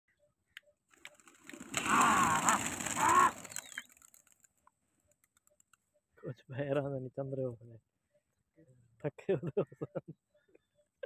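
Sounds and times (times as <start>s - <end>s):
pigeon wingbeats: 0.9s - 4.6s
wavering bird call: 1.8s - 3.9s.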